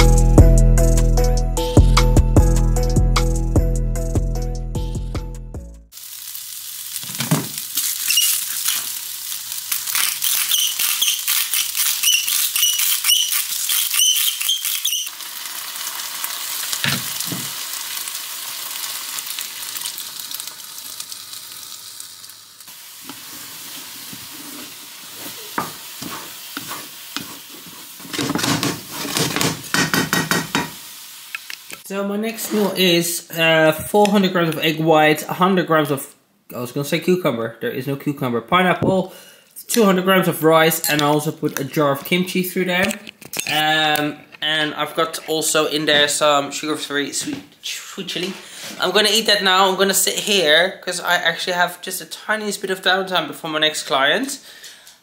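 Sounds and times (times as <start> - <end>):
rice sizzling in a frying pan: 5.9 - 12.4, 14.9 - 31.8
wooden spatula scraping a pan: 23.1 - 30.7.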